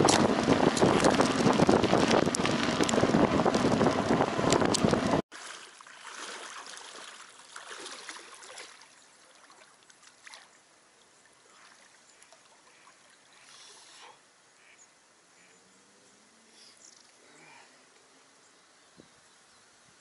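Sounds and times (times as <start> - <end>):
water sloshing as person wades: 0.0 - 13.5
short splash: 4.7 - 10.5.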